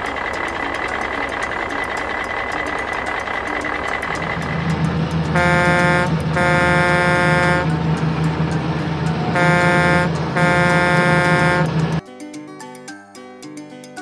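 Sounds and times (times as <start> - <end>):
diesel engine humming: 0.0 - 12.0
air horn blasts: 5.2 - 8.3, 9.1 - 12.0.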